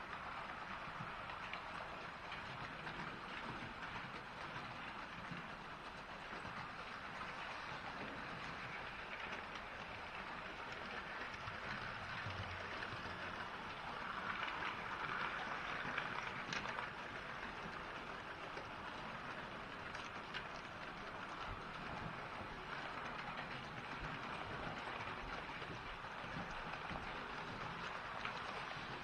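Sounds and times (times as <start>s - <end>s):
model trains whirring and clattering: 0.0s - 29.0s.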